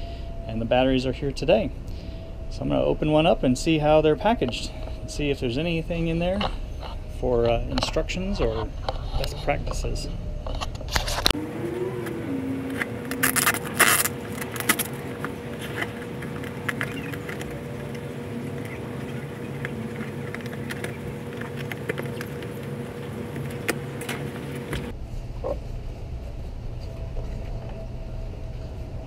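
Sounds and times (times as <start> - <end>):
steady tonal hum: 0.0 - 29.0
scissors cutting packing tape: 12.7 - 17.5
cardboard scraping and handling: 12.7 - 17.6.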